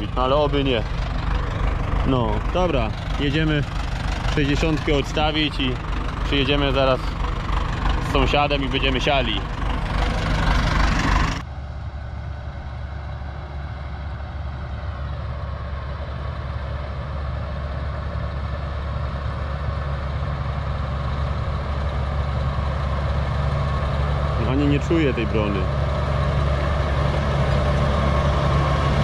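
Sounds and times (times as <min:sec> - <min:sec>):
tractor engine running: 0:00.0 - 0:29.0.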